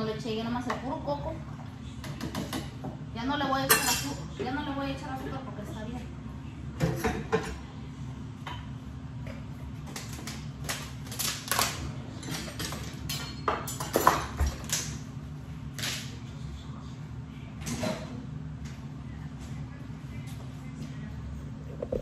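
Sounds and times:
dishes and utensils clinking: 3.6 - 4.6, 12.1 - 14.8
steady low hum: 14.6 - 22.0.

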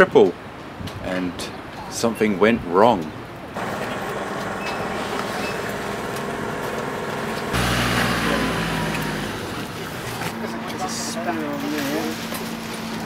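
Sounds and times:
street traffic: 3.2 - 13.0
deep engine rumble: 3.6 - 10.6.

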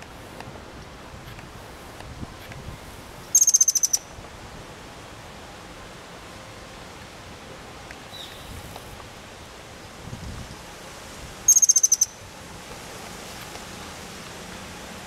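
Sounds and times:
steady background hiss: 0.0 - 15.0
hummingbird chittering trill: 3.3 - 4.1, 11.5 - 12.2.

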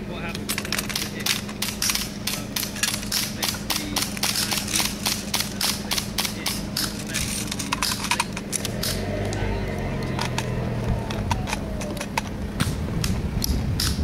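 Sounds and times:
metal gun parts clicking: 0.3 - 9.0.

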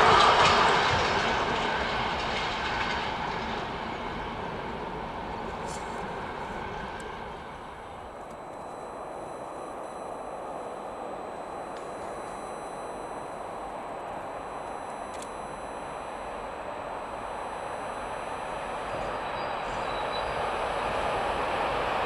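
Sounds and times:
train wheels rumbling on rails: 0.0 - 7.9.

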